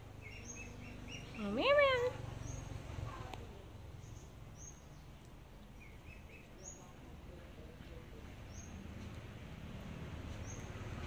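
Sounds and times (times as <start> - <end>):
bird chirping: 0.0 - 2.9, 3.9 - 7.0, 8.2 - 9.2, 10.3 - 10.9
faint outdoor background noise: 0.0 - 11.0.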